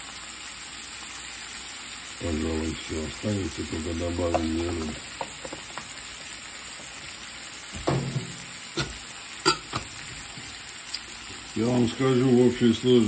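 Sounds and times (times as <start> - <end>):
liver and onions sizzling in a pan: 0.0 - 13.0
sharp knocks: 7.8 - 9.0.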